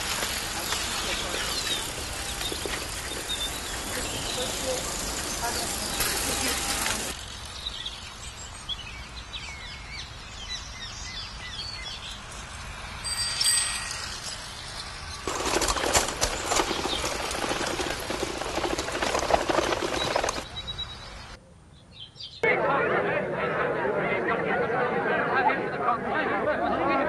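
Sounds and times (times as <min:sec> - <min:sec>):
birds chirping: 0:00.0 - 0:12.8, 0:13.4 - 0:22.4
many voices chattering: 0:03.7 - 0:07.2, 0:22.4 - 0:27.0.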